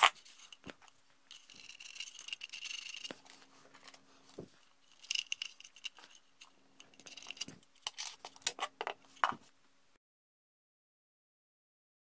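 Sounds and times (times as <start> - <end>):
faint steady hum: 0.0 - 10.0.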